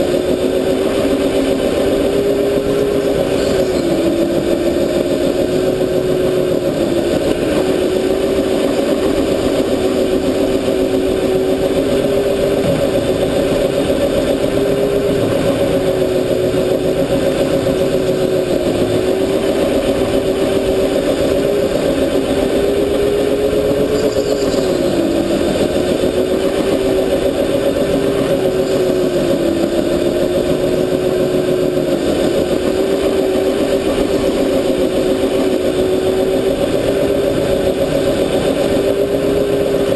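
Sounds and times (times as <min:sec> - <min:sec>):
go-kart motor droning: 0:00.0 - 0:39.9.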